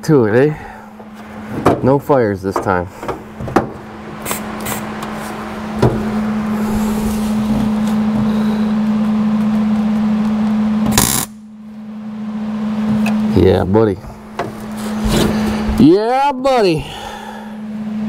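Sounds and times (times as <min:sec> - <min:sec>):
low hum: 0:00.0 - 0:18.0
welding arc crackling and hissing: 0:10.9 - 0:11.3.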